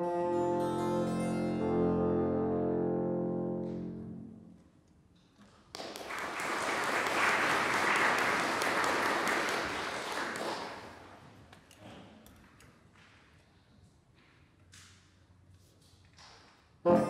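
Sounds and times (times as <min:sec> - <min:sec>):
bassoons and harpsichord chord: 0:00.0 - 0:04.4
audience applause: 0:05.8 - 0:11.2.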